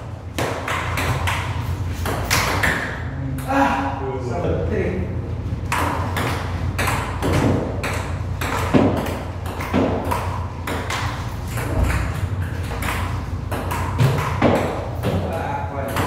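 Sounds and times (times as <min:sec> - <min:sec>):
steady low hum: 0:00.0 - 0:16.0
ping-pong ball clicking: 0:05.7 - 0:14.8.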